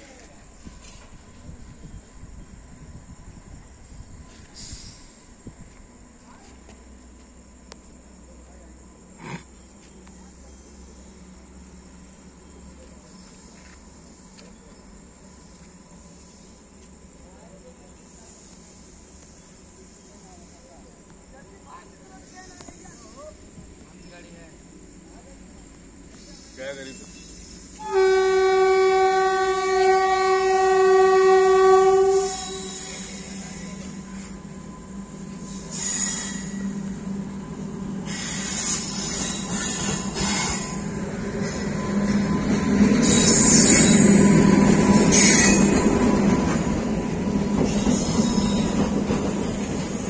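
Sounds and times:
freight train wheels rumbling: 0.0s - 50.0s
train horn blast: 27.8s - 33.3s
high screech: 32.1s - 34.4s, 35.3s - 37.0s, 38.0s - 42.2s, 43.0s - 46.1s.

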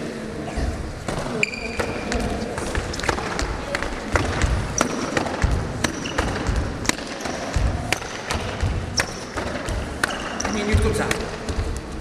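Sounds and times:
shoe squeaks: 0.5s - 2.5s, 10.0s - 11.0s.

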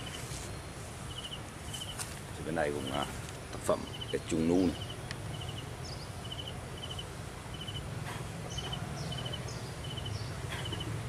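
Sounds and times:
higher chirps: 0.0s - 3.1s, 3.7s - 11.0s
animal chirping: 1.1s - 2.0s, 3.8s - 11.0s.

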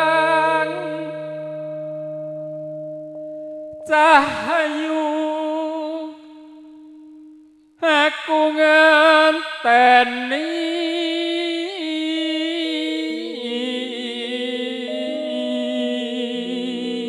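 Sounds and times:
person singing long wavering note: 0.0s - 17.0s
sustained keyboard chords: 14.9s - 17.0s.

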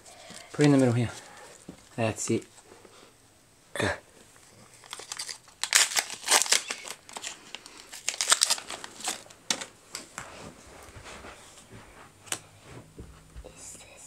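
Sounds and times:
foil wrapper crinkling and tearing: 4.5s - 9.7s.

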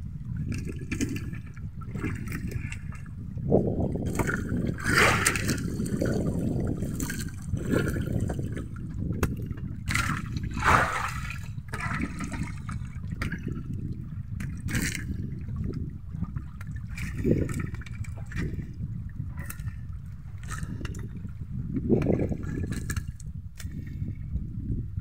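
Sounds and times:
low rumble: 0.0s - 25.0s
water splashes: 4.0s - 13.7s.

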